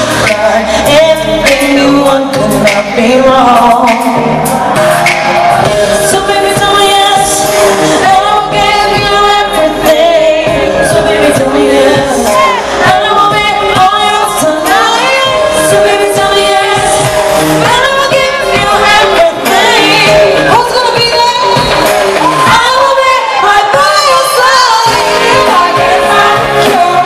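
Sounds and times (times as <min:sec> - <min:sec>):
pop backing music: 0:00.0 - 0:27.0
woman singing into a microphone: 0:00.0 - 0:27.0.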